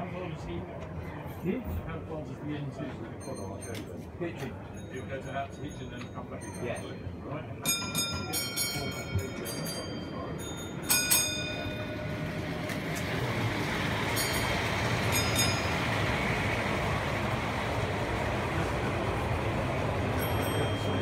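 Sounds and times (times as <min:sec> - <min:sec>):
model train rolling rumble: 0:07.8 - 0:21.0.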